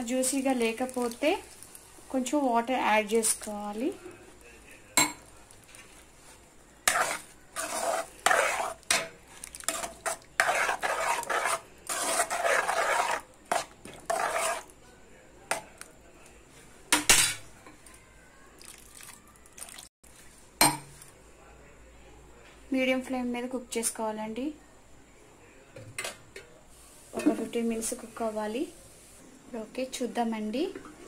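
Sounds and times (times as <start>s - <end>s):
spoon scraping a pan: 5.0s - 14.8s.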